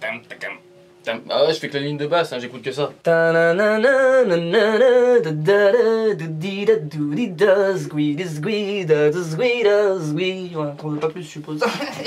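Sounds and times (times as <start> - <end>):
man singing unaccompanied: 2.9 - 11.8.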